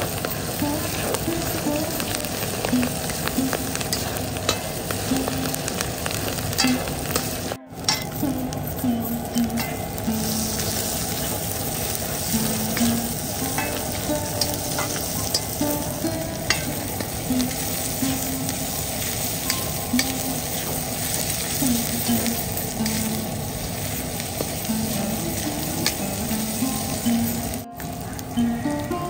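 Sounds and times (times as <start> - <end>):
food sizzling in a pan: 0.0 - 29.0.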